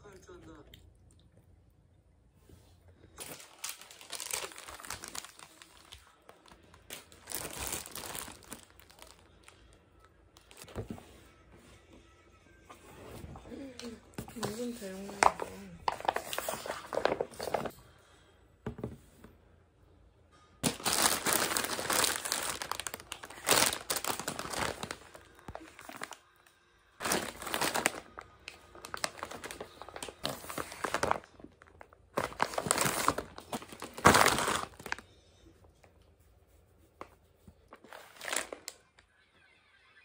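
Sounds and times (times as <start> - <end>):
plastic bags crinkling: 3.1 - 9.6, 15.2 - 17.7, 20.6 - 26.2, 27.0 - 35.0, 37.7 - 38.8.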